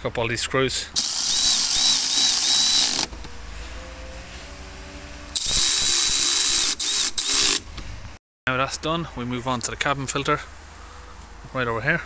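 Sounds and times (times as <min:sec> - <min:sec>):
electric ratchet motor whirring: 0:01.0 - 0:03.2, 0:05.2 - 0:07.7.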